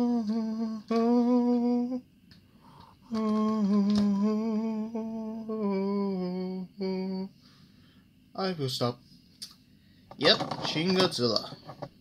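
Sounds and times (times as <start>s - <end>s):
man humming: 0.0s - 2.0s, 3.0s - 7.4s.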